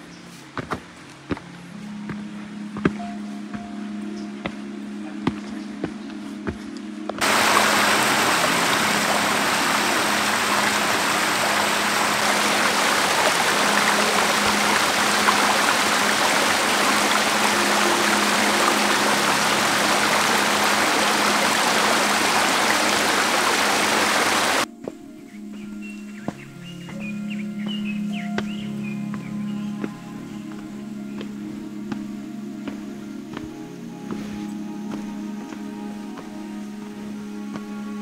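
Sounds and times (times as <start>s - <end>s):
stream rushing over boulders: 7.2s - 24.7s.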